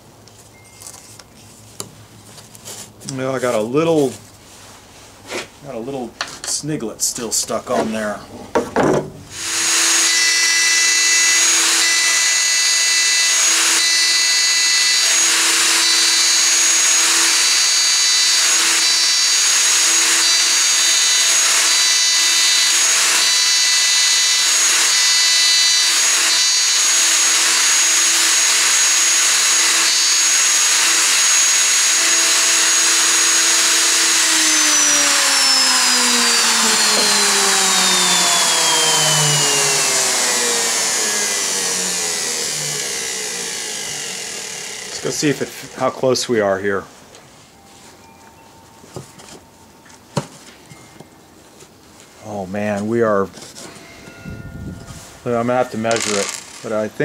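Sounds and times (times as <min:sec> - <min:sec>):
router bit cutting plywood: 0:09.3 - 0:46.1, 0:55.4 - 0:57.0
router high whine: 0:09.3 - 0:46.6, 0:53.6 - 0:57.0.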